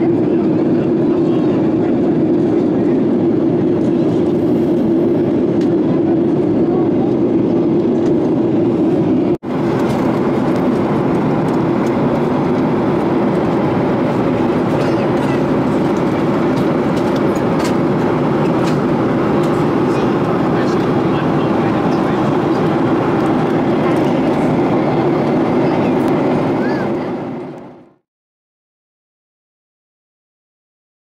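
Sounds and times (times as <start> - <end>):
airplane cabin drone: 0.0 - 28.0
jet engines humming: 0.0 - 28.0.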